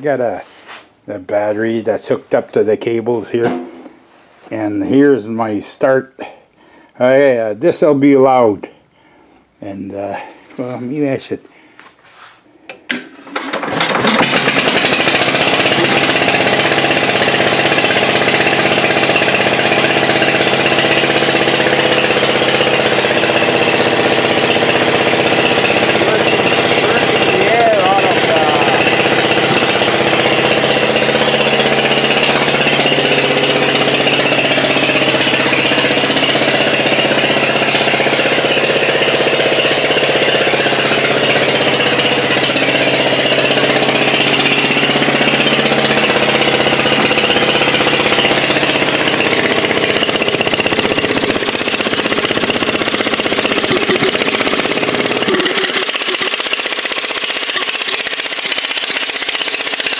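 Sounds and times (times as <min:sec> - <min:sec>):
generator engine running: 0:12.8 - 0:59.9.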